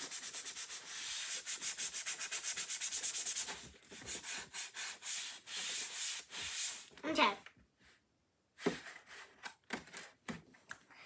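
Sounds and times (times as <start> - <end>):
eraser rubbing on card: 0.0 - 6.9.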